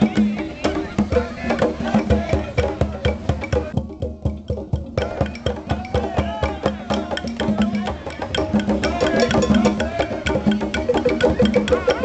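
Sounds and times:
conga drums played by hand: 0.0s - 12.0s
stick clicking wooden pattern: 3.1s - 12.0s.

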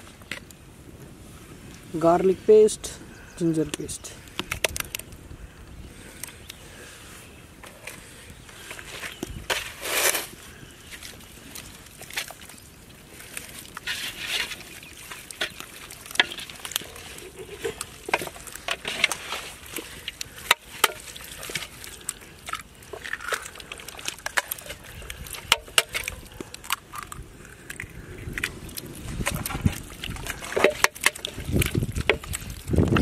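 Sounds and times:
hands squishing raw chicken: 10.6s - 32.7s.

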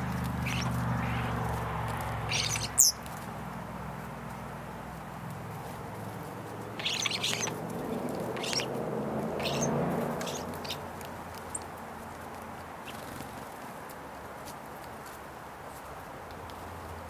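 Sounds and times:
birds chirping: 0.0s - 3.1s, 6.6s - 11.8s.

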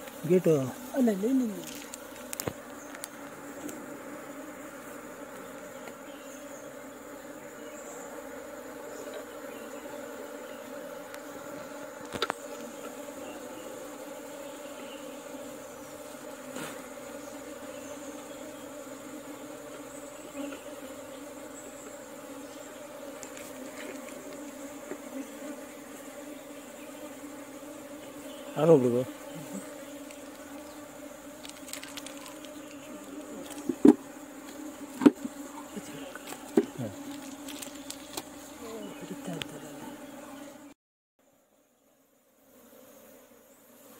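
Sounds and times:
honeybees buzzing: 0.0s - 43.9s
knocks on wooden box: 33.6s - 34.0s, 35.0s - 35.3s.

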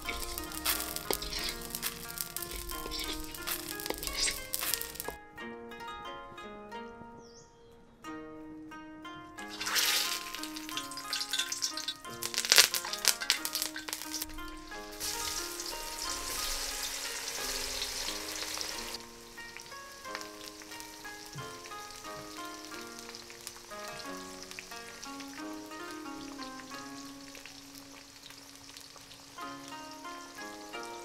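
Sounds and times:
hot oil sizzling and crackling: 0.0s - 5.2s, 9.4s - 31.0s
plucked-string background music: 0.0s - 31.0s.

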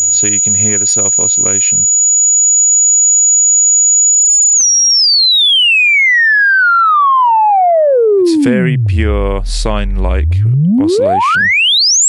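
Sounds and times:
high pure sine-like tone: 0.0s - 4.8s, 7.5s - 12.0s.

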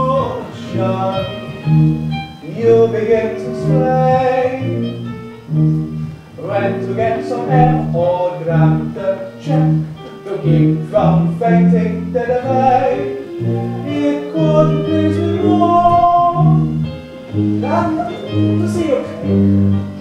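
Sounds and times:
instrumental accompaniment with bass: 0.0s - 20.0s
people singing live: 6.4s - 16.5s.

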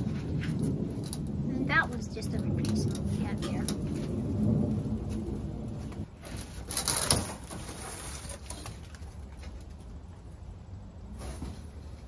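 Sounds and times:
low rubbing rumble: 0.0s - 6.6s.

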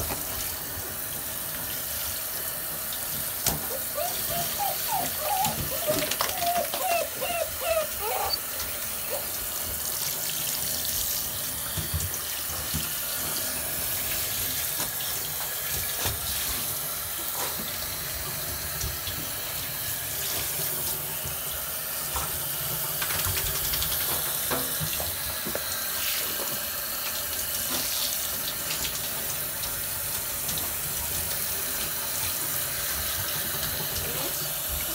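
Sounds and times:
shower spray splashing water: 0.0s - 34.9s
puppies whining: 3.5s - 9.5s.

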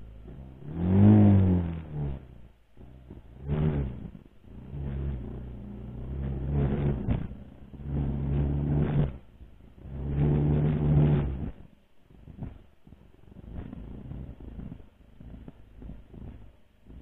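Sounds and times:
dirt bike engine revving: 0.0s - 2.3s, 3.3s - 9.2s, 9.8s - 11.6s.

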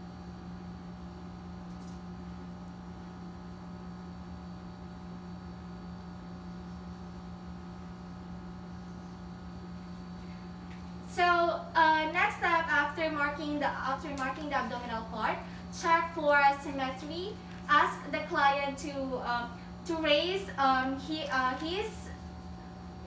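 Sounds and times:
electrical hum: 0.0s - 23.0s.

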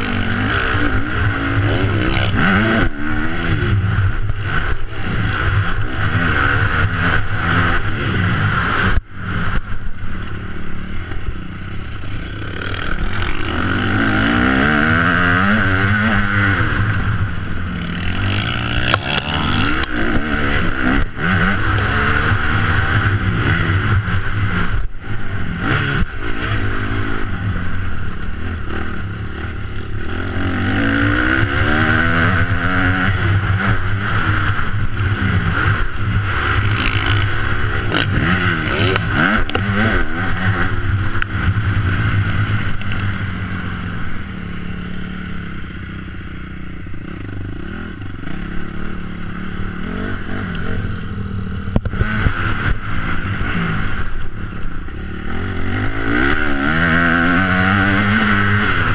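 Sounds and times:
motocross bike engine revving: 0.0s - 58.9s
bike clattering over rough dirt: 18.3s - 19.6s.

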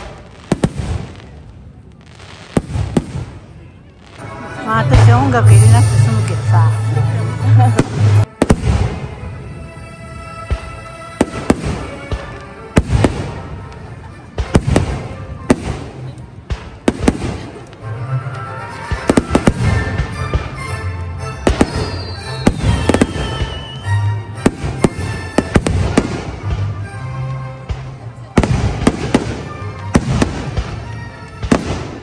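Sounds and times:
music playing: 4.0s - 32.0s
firework shells bursting: 21.4s - 26.8s.

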